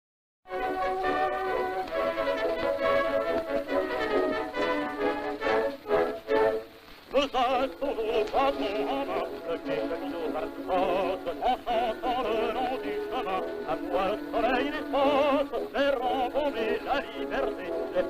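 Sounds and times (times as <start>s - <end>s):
instrumental accompaniment: 0.5s - 18.0s
man singing operatically: 7.1s - 18.0s.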